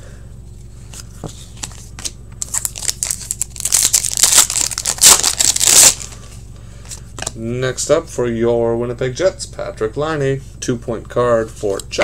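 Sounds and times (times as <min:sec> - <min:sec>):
wrapper tearing and crinkling: 0:01.6 - 0:06.2.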